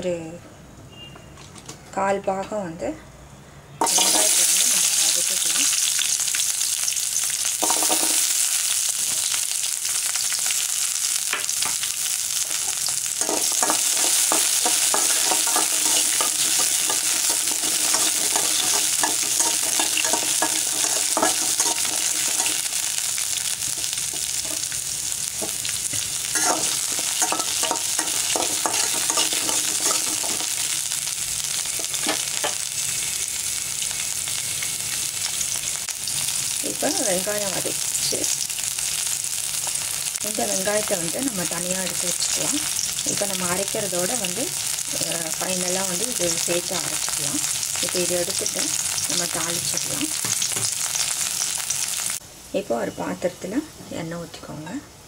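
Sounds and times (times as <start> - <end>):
onions sizzling in hot oil: 3.8 - 53.6
spatula scraping and stirring: 12.5 - 23.0, 25.4 - 30.7.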